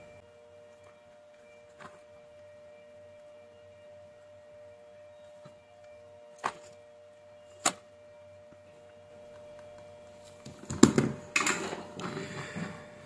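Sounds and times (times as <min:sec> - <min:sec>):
clattering and rustling on bench: 0:10.6 - 0:12.8.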